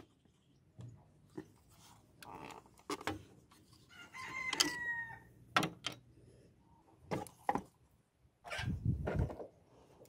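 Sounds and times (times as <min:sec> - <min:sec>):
rooster crowing: 0:03.9 - 0:05.3.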